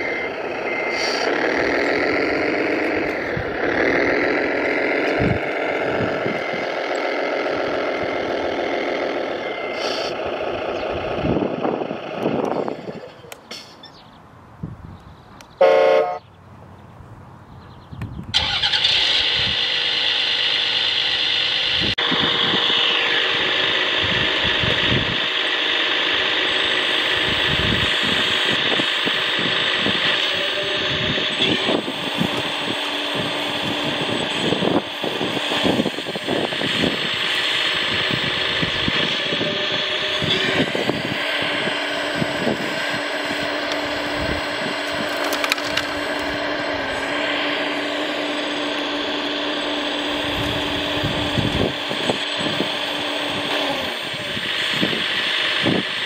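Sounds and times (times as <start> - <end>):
high whine: 0.0 - 13.5, 18.4 - 56.0
simulated diesel engine running: 0.0 - 14.0, 17.3 - 56.0
horn blast: 15.6 - 16.2.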